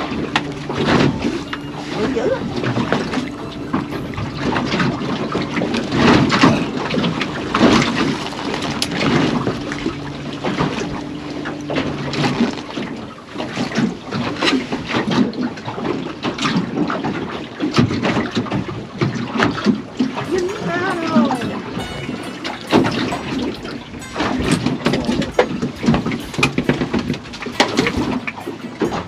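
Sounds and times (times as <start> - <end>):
water noise: 0.0 - 14.9.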